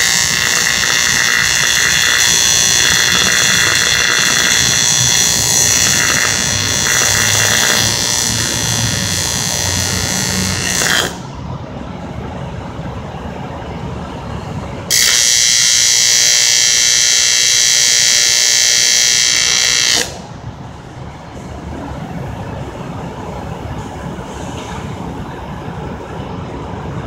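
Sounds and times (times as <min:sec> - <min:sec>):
welding arc buzzing: 0:00.0 - 0:11.4, 0:14.9 - 0:21.0.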